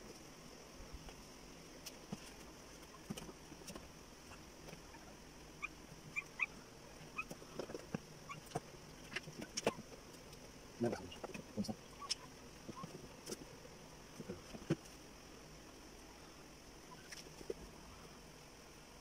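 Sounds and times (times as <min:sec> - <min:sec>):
puppies squeaking: 0:05.6 - 0:06.5, 0:07.1 - 0:07.4, 0:08.3 - 0:09.8.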